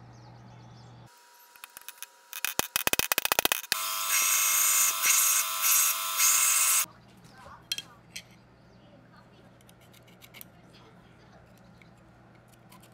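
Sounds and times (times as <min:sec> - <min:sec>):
belt grinder grinding metal part: 0:01.6 - 0:06.9.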